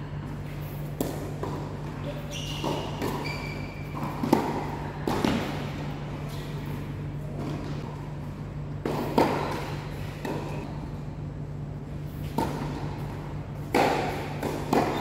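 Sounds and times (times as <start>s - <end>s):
tennis ball struck by rackets: 1.0s - 1.7s, 4.0s - 5.7s, 8.8s - 10.5s, 12.2s - 13.0s, 13.6s - 15.0s.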